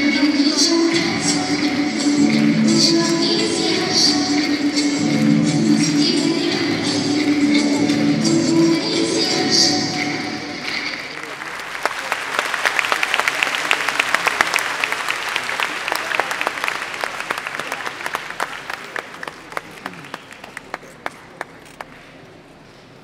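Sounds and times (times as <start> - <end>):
audience applause: 10.6 - 22.0.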